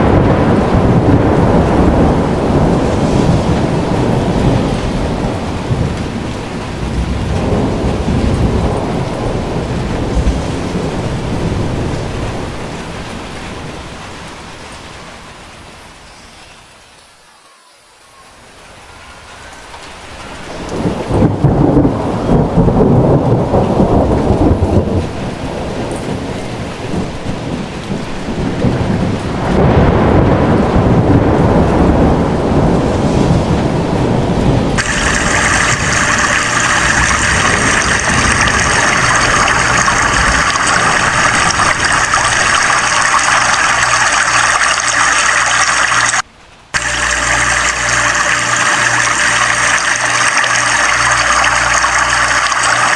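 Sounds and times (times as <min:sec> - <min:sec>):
deep rumbling rushing water: 0:00.0 - 0:15.9, 0:18.6 - 0:52.9
heavy rain on pavement: 0:00.0 - 0:17.3, 0:18.0 - 0:52.9
river in flood rushing: 0:31.7 - 0:52.9.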